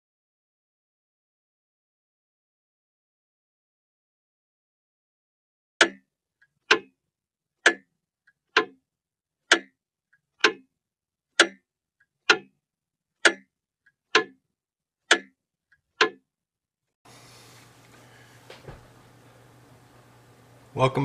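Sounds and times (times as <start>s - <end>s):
faint clock click: 5.8s - 6.0s, 6.7s - 6.9s, 7.6s - 7.9s, 8.5s - 8.8s, 9.5s - 10.7s, 11.4s - 11.6s, 12.3s - 12.5s, 13.2s - 13.5s, 14.1s - 14.4s, 15.1s - 15.4s, 16.0s - 16.2s
mechanical clock ticking: 5.8s - 7.0s, 7.6s - 8.8s, 9.4s - 10.7s, 11.3s - 12.6s, 13.2s - 14.4s, 15.0s - 16.3s.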